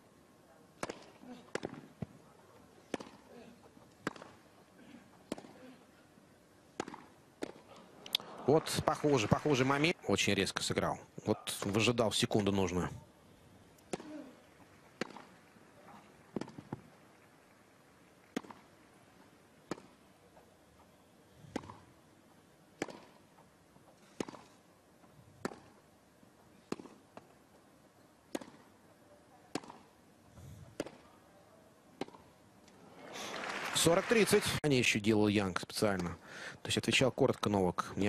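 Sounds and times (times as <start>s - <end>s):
tennis racket hitting ball: 2.9s - 3.2s, 4.0s - 4.4s, 6.7s - 7.6s, 15.0s - 15.3s, 16.3s - 16.8s, 18.3s - 18.6s, 21.5s - 21.9s, 22.8s - 23.2s, 24.1s - 24.6s, 25.4s - 25.8s, 26.7s - 27.0s, 28.3s - 28.7s, 29.5s - 29.9s.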